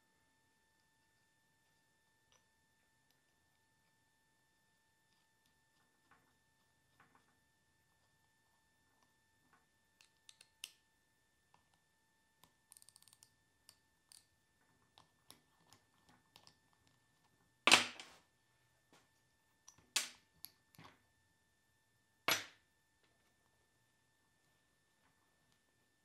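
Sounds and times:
small metallic clicks and taps: 9.0s - 10.8s, 12.4s - 17.0s.

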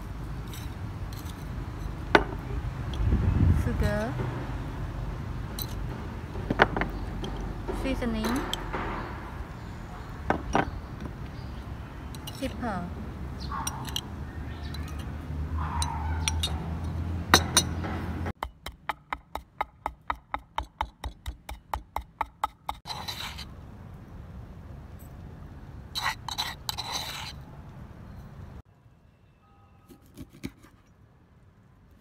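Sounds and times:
metal spoon clinking and scraping: 0.4s - 2.2s, 5.5s - 5.9s, 12.1s - 12.6s, 13.6s - 17.8s, 26.0s - 27.4s
wooden pestle pounding in mortar: 18.4s - 22.8s.

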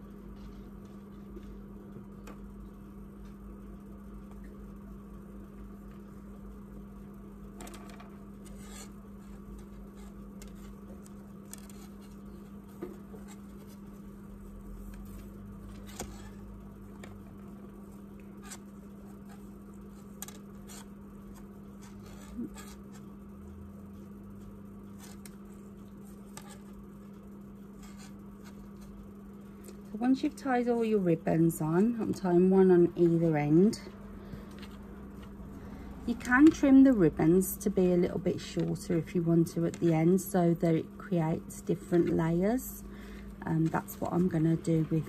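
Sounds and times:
steady low hum: 0.0s - 45.0s
faint taps and rustles: 9.2s - 14.1s.

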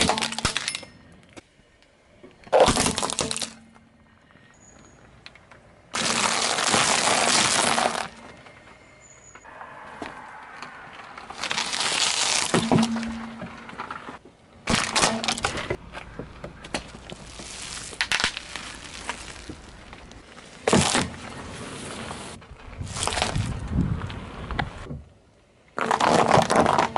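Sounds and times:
ice-cream cones crunching: 6.0s - 8.2s, 11.3s - 12.8s, 17.0s - 21.2s
gift box being flattened: 11.4s - 13.0s.

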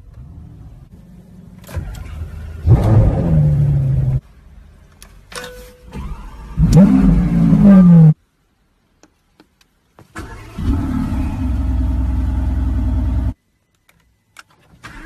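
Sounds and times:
car engine revving: 1.8s - 4.2s, 6.6s - 8.2s, 10.3s - 13.4s
engine starting and idling: 5.9s - 7.2s, 10.2s - 13.3s, 14.7s - 15.0s.

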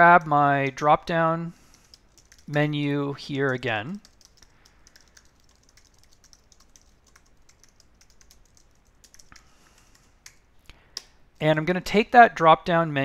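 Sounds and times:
typing on computer keyboard: 1.7s - 2.7s, 3.5s - 10.4s.

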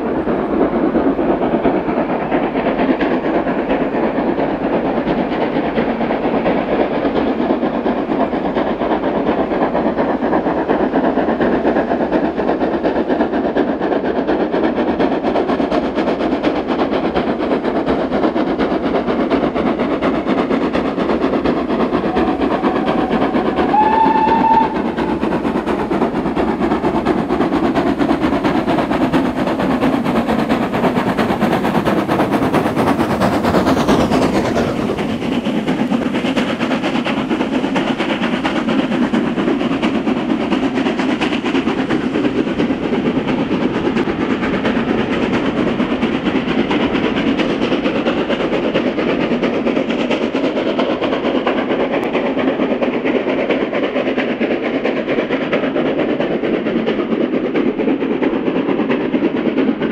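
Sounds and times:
steam locomotive exhaust beats: 0.0s - 59.9s
train whistle blast: 22.1s - 25.1s.

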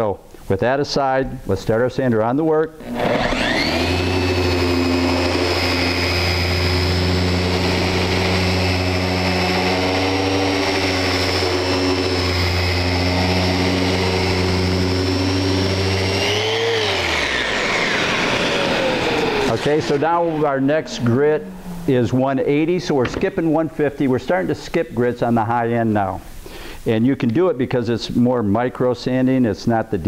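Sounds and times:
orbital sander sanding wood: 2.8s - 23.7s.

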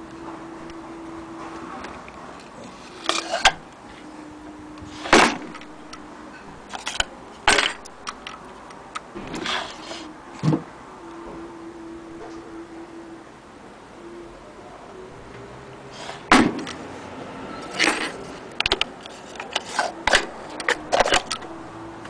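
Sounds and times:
faint steady hum: 0.0s - 22.0s
short scrape: 9.3s - 10.1s.

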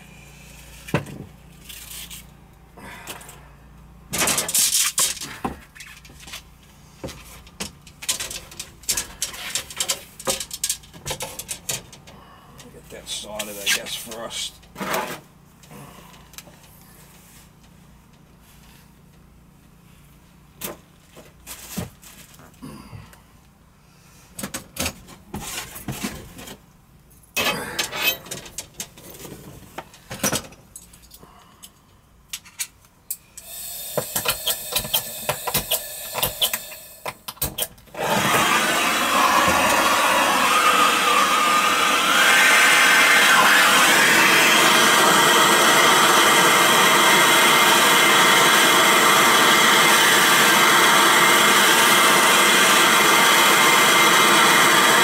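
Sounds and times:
tools clicking and knocking: 7.5s - 12.1s, 33.9s - 37.8s
torch flame hissing: 33.4s - 37.1s, 38.0s - 55.0s.

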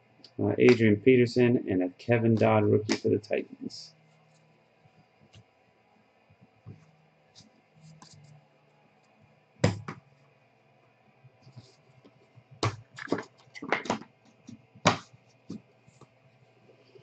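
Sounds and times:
cards tapping and rustling: 12.6s - 16.1s.

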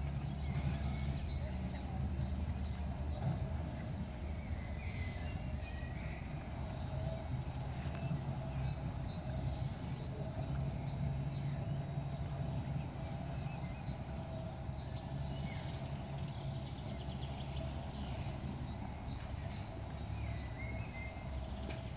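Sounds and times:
birds chirping: 0.2s - 21.9s.

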